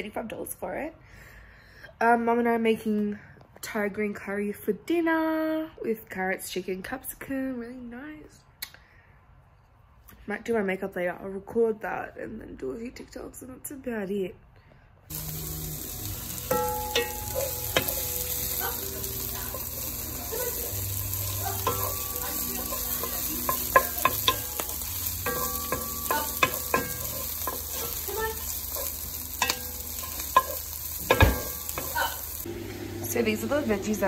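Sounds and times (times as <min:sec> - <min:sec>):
onions sizzling in a frying pan: 0:15.1 - 0:34.0
wooden spoon scraping a pan: 0:16.3 - 0:32.5
spoon knocking on pan: 0:16.4 - 0:32.4.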